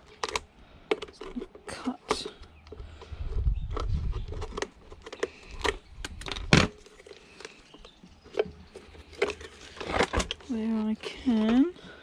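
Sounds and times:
plastic housing clicks and knocks: 0:00.0 - 0:10.5.

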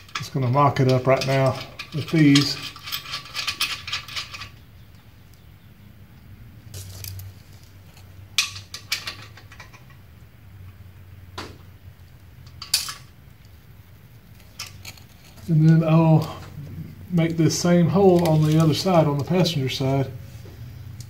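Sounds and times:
metal fasteners clinking: 0:00.0 - 0:04.9, 0:06.7 - 0:10.1, 0:12.1 - 0:13.6, 0:14.3 - 0:20.0
low steady hum: 0:00.0 - 0:21.0.

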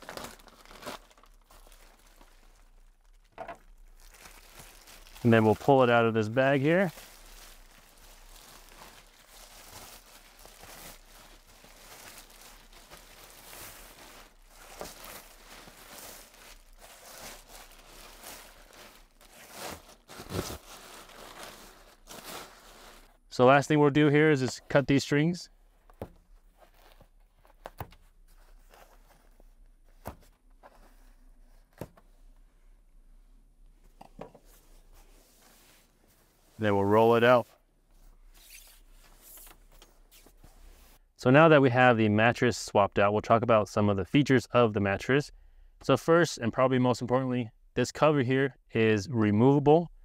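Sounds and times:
handling rustle: 0:00.0 - 0:23.2, 0:25.6 - 0:32.5
plastic wrapping crinkling: 0:00.0 - 0:23.2.

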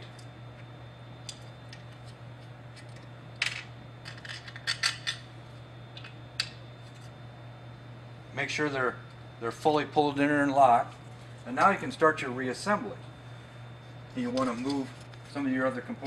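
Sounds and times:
low steady hum: 0:00.0 - 0:16.0
small metal parts clinking: 0:02.8 - 0:05.2.

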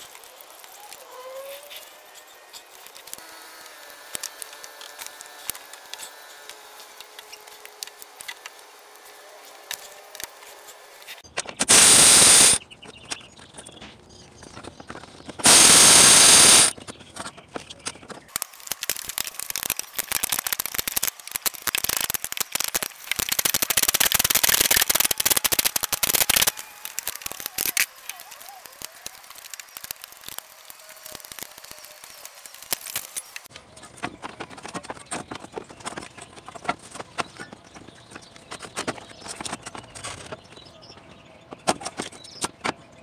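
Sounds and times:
loud burst of noise: 0:11.6 - 0:12.6, 0:15.4 - 0:16.7, 0:18.4 - 0:33.5.

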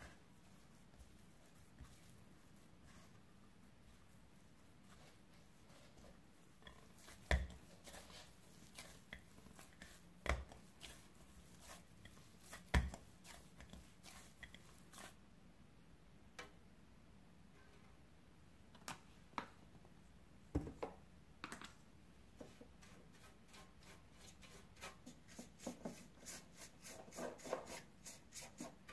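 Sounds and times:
hands kneading dough: 0:00.0 - 0:15.2, 0:22.3 - 0:28.9.

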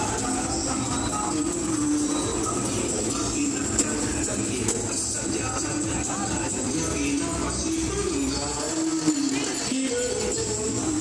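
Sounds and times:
festival music: 0:00.0 - 0:11.0
jingling shaking percussion: 0:05.2 - 0:11.0.

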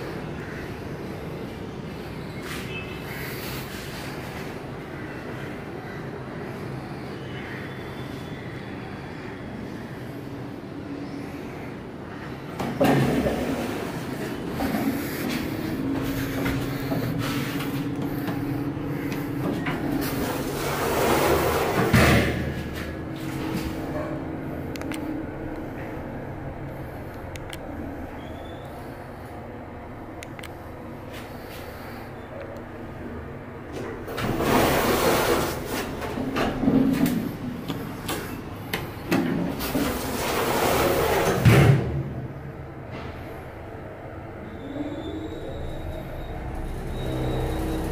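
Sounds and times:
lift humming: 0:08.8 - 0:47.9
lift doors sliding open: 0:12.7 - 0:24.4, 0:33.7 - 0:38.4, 0:39.0 - 0:42.2, 0:44.5 - 0:47.9
elevator doors shutting thud: 0:39.1 - 0:43.3.

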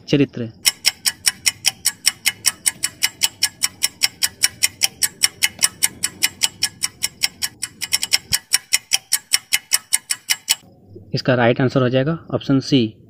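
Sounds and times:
clock ticking: 0:00.5 - 0:10.6.

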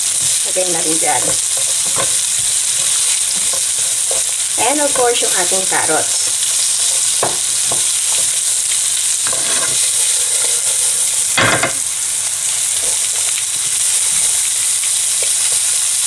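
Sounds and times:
vegetables sizzling in oil: 0:00.0 - 0:16.0
spatula scraping pan: 0:09.2 - 0:11.2.

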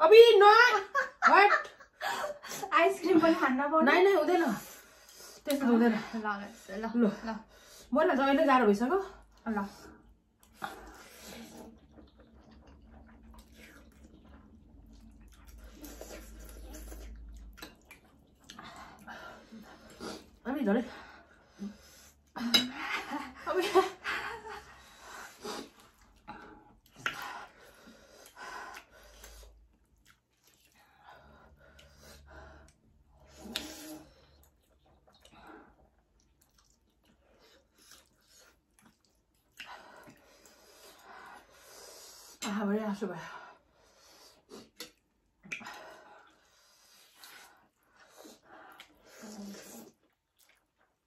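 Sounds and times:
breathing: 0:07.4 - 0:07.9, 0:24.6 - 0:29.6, 0:45.6 - 0:49.5
chewing and mouth noises: 0:10.0 - 0:20.4, 0:25.2 - 0:41.1, 0:44.3 - 0:51.0
people slurping noodles: 0:10.0 - 0:20.4.

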